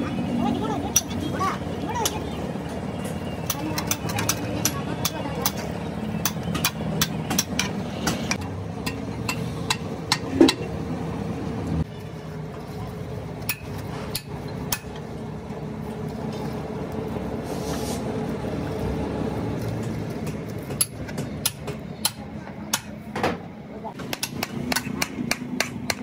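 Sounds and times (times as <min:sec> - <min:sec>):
engine hum: 0:00.0 - 0:26.0.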